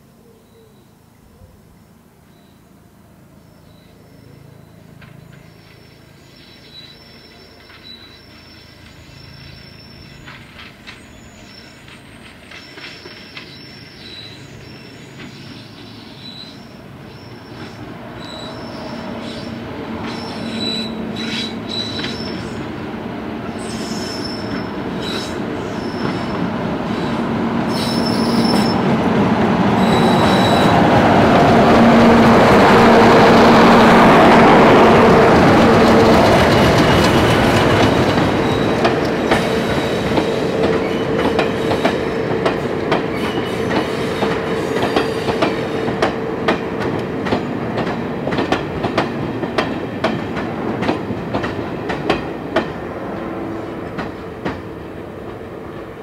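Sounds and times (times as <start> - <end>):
diesel locomotive engine drone: 1.9 - 56.0
wheel flanges squealing: 4.3 - 22.6, 23.6 - 28.9, 29.8 - 31.0, 35.5 - 45.9.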